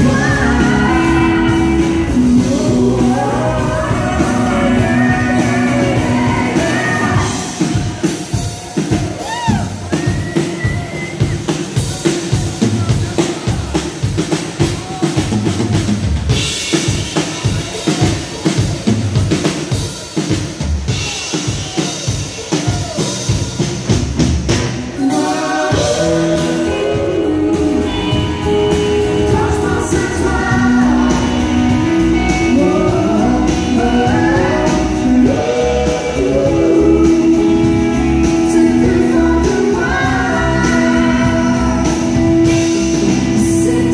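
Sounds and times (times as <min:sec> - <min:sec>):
person singing: 0:00.0 - 0:12.1, 0:24.9 - 0:43.9
drum kit beat: 0:00.0 - 0:43.9
rock band playing: 0:00.0 - 0:43.9.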